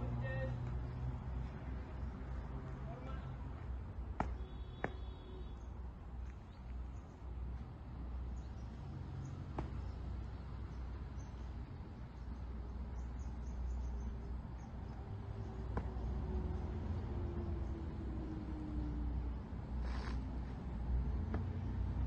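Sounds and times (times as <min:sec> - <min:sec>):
birds and insects chirping: 0:00.0 - 0:22.0
boot stamping on asphalt: 0:03.5 - 0:05.2, 0:09.4 - 0:10.0.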